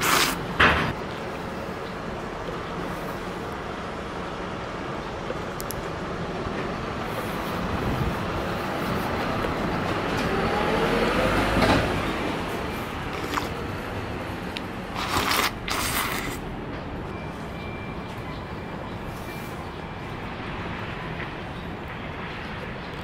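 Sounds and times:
street traffic: 0:00.0 - 0:23.0
vehicle rising whine: 0:05.8 - 0:22.6.

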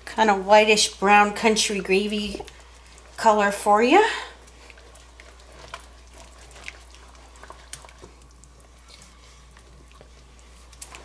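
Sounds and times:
low steady hum: 0:00.0 - 0:11.0
gravy popping in a pan: 0:04.4 - 0:08.8.

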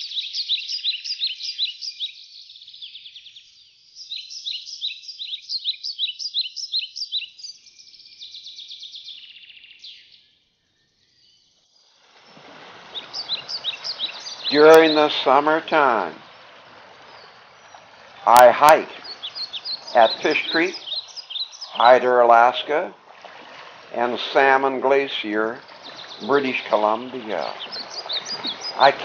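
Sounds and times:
songbirds chirping: 0:00.0 - 0:29.0
creek water rushing: 0:12.0 - 0:29.0.

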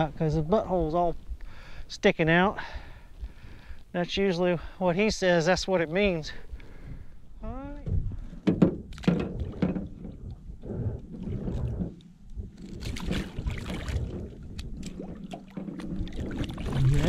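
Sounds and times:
knocks on aluminium boat: 0:07.8 - 0:10.2
splashing and rustling: 0:07.9 - 0:17.0.

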